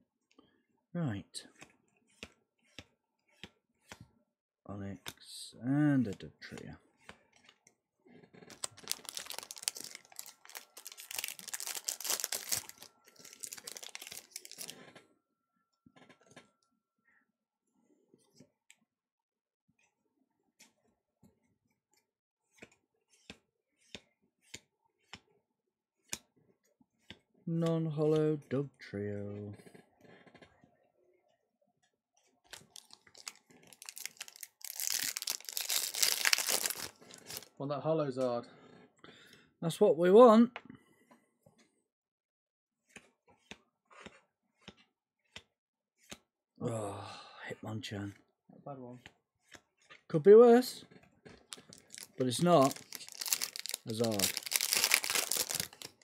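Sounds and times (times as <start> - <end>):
foil wrapper crinkling and tearing: 8.5 - 14.8, 32.5 - 37.5, 51.5 - 56.0.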